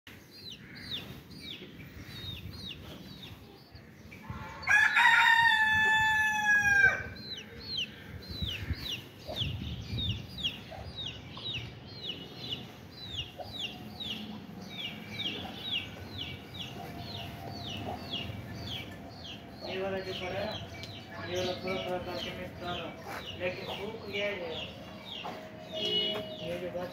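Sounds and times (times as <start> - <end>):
rooster crowing: 4.5 - 7.1.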